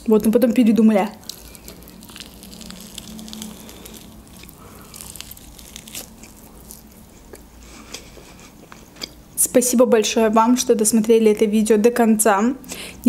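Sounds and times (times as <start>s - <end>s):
wet chewing clicks: 1.1s - 7.5s
teeth tearing meat: 1.1s - 9.2s.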